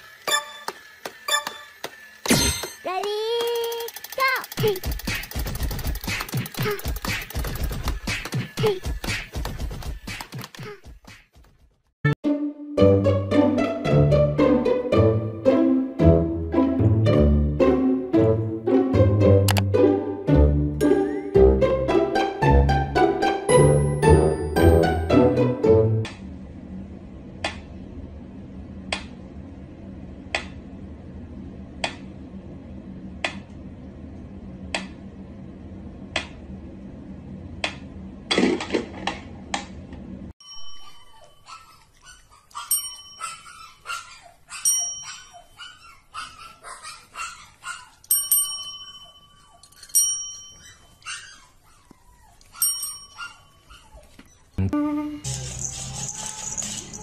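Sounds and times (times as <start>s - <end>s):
service bells dinging: 42.7s - 43.6s, 48.1s - 50.9s, 52.6s - 53.7s.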